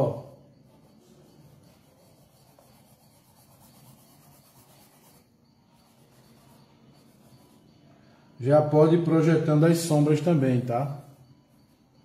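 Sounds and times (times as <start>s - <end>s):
paintbrush scrubbing on canvas: 0.5s - 7.8s.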